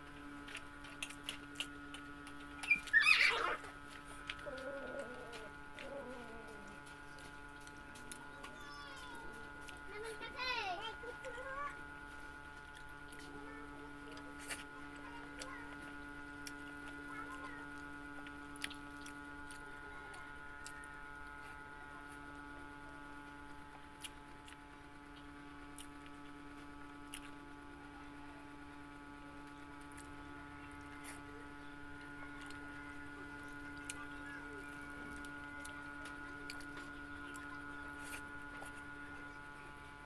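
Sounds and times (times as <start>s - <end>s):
steady hum: 0.0s - 40.0s
person chewing: 0.4s - 8.5s, 12.6s - 13.2s, 18.2s - 19.7s, 23.9s - 24.6s, 25.8s - 26.0s, 27.0s - 27.4s, 33.6s - 34.4s, 35.0s - 38.9s.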